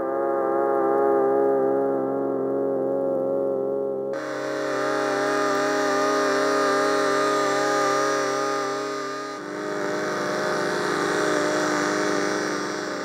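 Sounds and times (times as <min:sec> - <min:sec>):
synthesizer sustained chord: 0:04.2 - 0:13.0.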